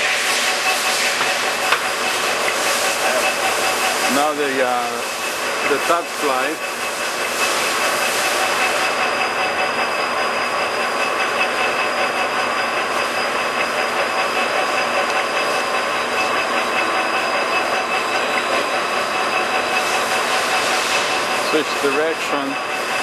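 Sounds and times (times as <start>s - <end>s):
lathe mechanical running noise: 0.0s - 23.0s
high whining tones: 7.6s - 23.0s.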